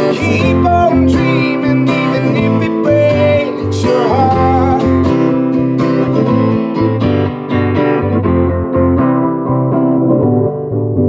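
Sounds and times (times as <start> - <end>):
strummed guitar: 0.0 - 11.0.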